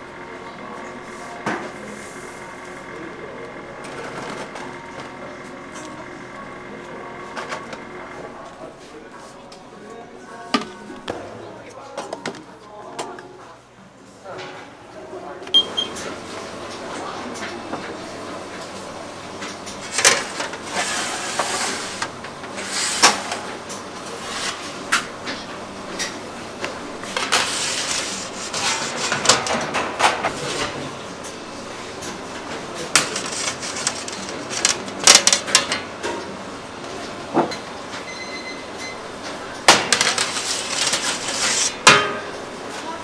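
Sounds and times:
metal clanks and scraping: 27.2s - 30.4s.

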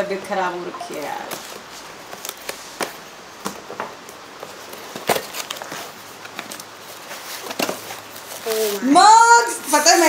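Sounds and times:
cardboard rustling and scraping: 4.4s - 9.0s.

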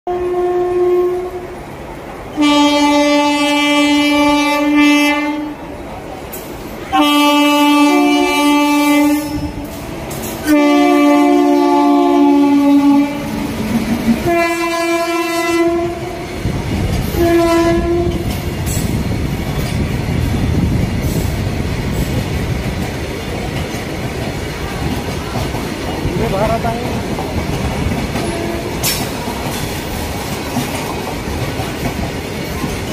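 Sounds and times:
locomotive horn blasts: 0.1s - 1.6s, 2.4s - 5.6s, 6.9s - 9.7s, 10.4s - 13.4s, 14.2s - 16.3s, 17.1s - 18.3s, 28.2s - 28.8s
train wagons rumbling past: 0.1s - 32.9s
wheels clacking on rails: 5.7s - 32.9s.

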